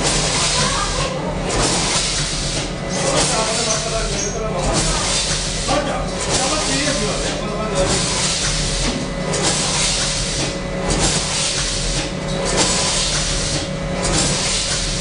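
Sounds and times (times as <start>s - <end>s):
machine mechanical hum: 0.0s - 15.0s.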